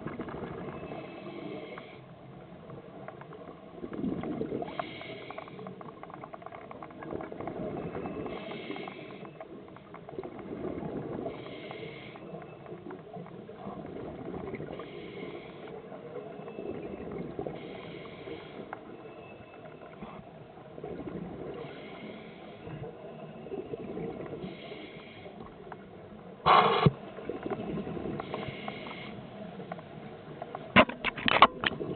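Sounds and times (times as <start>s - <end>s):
rumble of bubbles and water: 0.0s - 31.9s
regulator breathing hiss: 11.4s - 12.2s, 24.4s - 25.5s, 28.2s - 29.4s.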